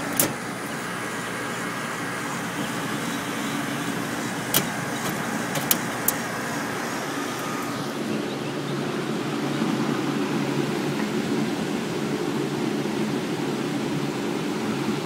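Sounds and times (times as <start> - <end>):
heat pump fan humming: 0.0 - 15.0
sharp clicks: 4.4 - 6.2.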